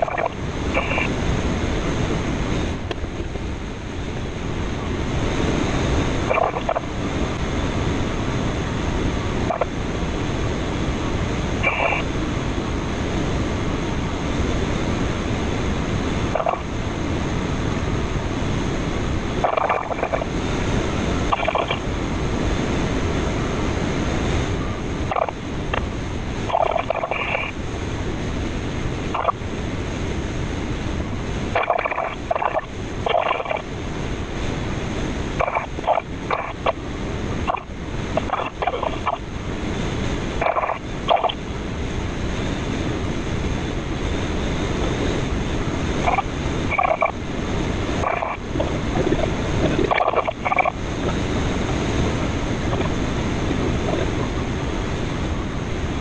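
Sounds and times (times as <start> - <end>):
wind noise in glider cockpit: 0.0 - 56.0.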